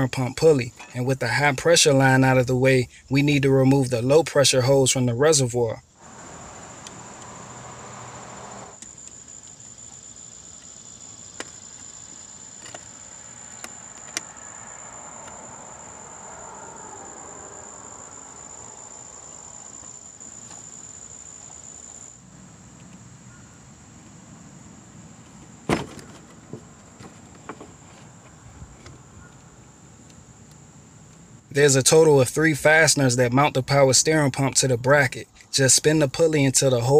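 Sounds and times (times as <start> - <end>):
insect trill: 0.0 - 36.9.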